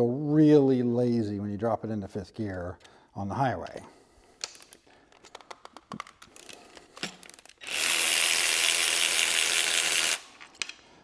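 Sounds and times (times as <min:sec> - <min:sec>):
tools clicking and knocking: 0:04.4 - 0:07.7, 0:10.3 - 0:10.9
electric ratchet running: 0:07.3 - 0:10.3.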